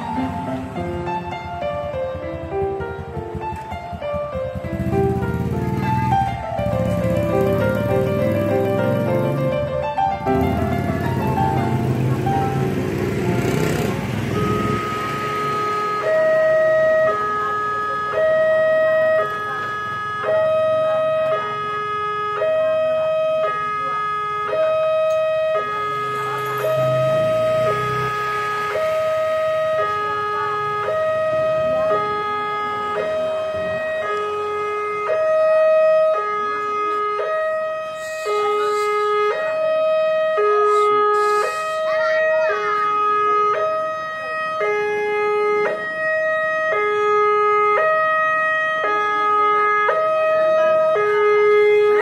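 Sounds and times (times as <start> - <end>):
level crossing two-tone alarm: 14.2 - 52.0.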